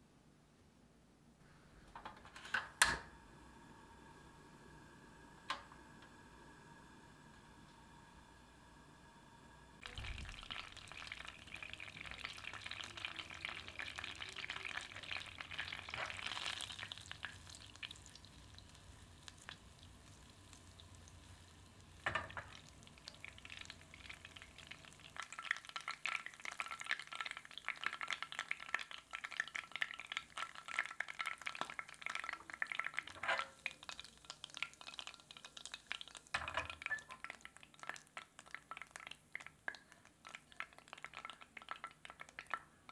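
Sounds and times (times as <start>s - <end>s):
butter sizzling in a pan: 9.8s - 42.9s.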